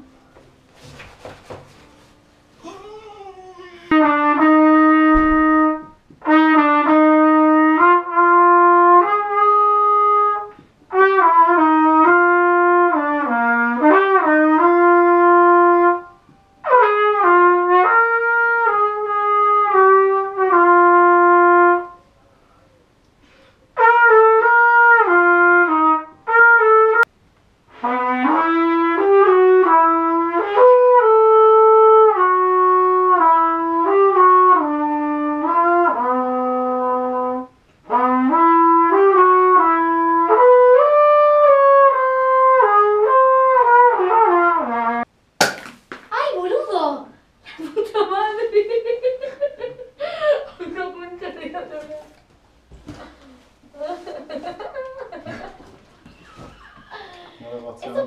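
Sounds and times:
solo trumpet melody: 3.9 - 22.2, 23.8 - 27.1, 27.7 - 45.1.

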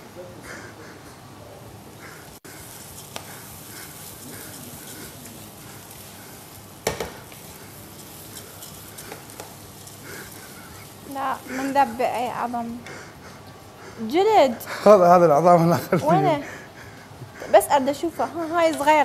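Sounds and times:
food sizzling in hot oil: 2.0 - 13.0, 17.6 - 19.0
utensil knocking on pot: 6.8 - 7.2.

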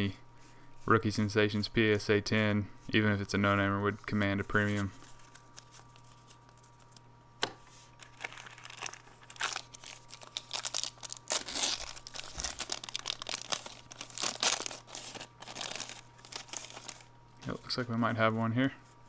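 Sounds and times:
plastic wrapper crinkling and tearing: 5.0 - 7.0, 8.0 - 17.1.

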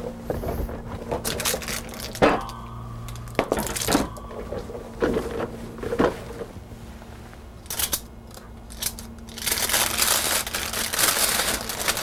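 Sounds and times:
parchment paper rustling: 8.4 - 12.0.

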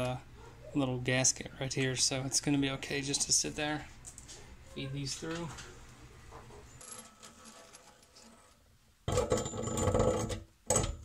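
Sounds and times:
metal lines rattling against sink: 9.1 - 11.0.

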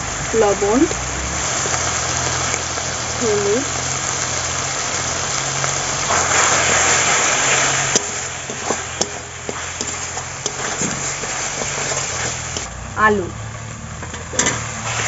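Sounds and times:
masala frying in oil: 0.0 - 15.0
metal spatula scraping a pan: 5.6 - 12.7, 14.0 - 15.0.

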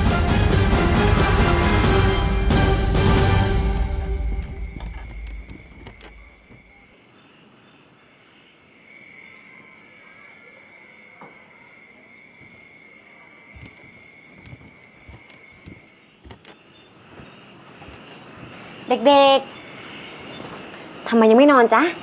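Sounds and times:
cricket trill: 3.1 - 22.0.

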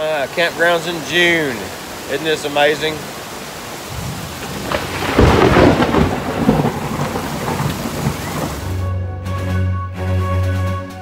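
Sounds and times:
heavy rain: 0.0 - 8.9
thunder rumbling: 3.8 - 8.8.

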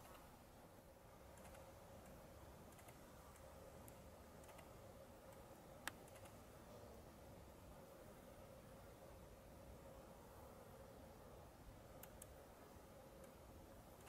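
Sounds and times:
faint background hiss: 0.0 - 14.0
low steady hum: 0.0 - 14.0
faint ticks: 1.3 - 6.4, 11.9 - 12.4, 13.2 - 13.4.

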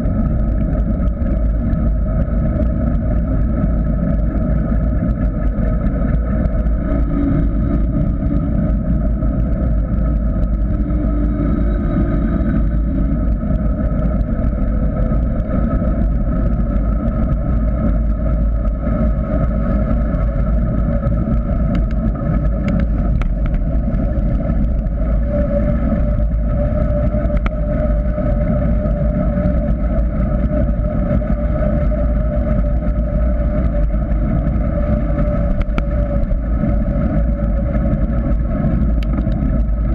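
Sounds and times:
bicycle tyre rumble on asphalt: 0.0 - 39.9
steady whistling hum: 0.0 - 39.9
wind rushing: 5.2 - 15.0.

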